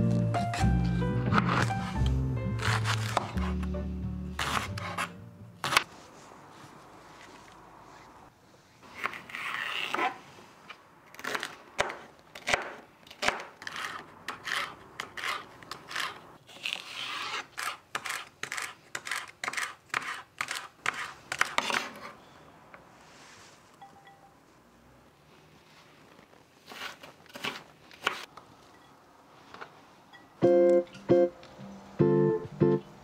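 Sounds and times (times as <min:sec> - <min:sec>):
knife slicing celery: 0:01.3 - 0:03.7, 0:04.4 - 0:05.9, 0:11.1 - 0:22.1, 0:26.6 - 0:28.3.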